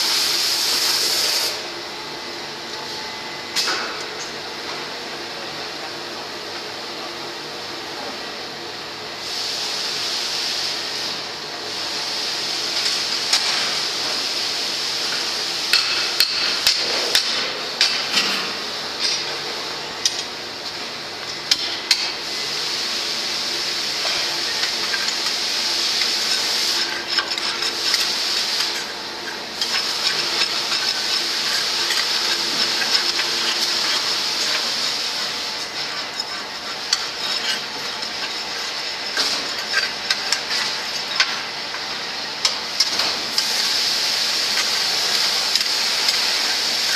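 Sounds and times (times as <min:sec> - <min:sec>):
rotary drum machinery hiss: 0:00.0 - 0:01.8, 0:09.2 - 0:46.9
steel rods scraping metal drum: 0:23.8 - 0:41.5.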